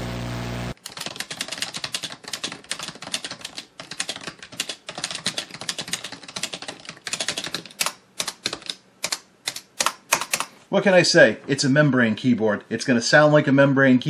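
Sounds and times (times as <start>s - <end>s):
fast typing on keyboard: 0.8s - 10.5s.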